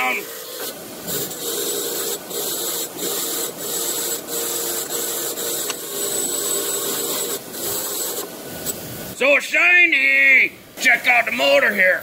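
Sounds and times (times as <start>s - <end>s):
grinder motor humming: 0.0s - 8.4s.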